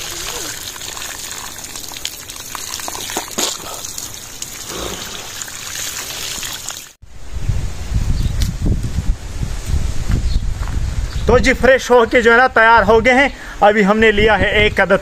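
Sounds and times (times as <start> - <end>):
water splashing from hose: 0.0 - 7.0.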